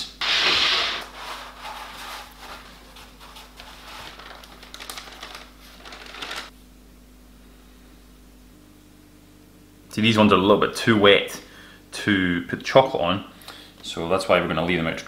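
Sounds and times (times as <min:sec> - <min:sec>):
paper rustling: 0:00.2 - 0:06.5
plastic bag crinkling: 0:03.4 - 0:06.5.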